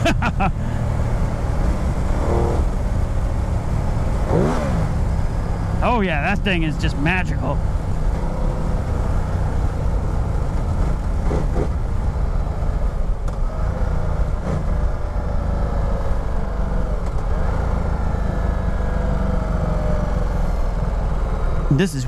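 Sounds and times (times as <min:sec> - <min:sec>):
motorcycle engine decelerating: 0:00.0 - 0:21.7.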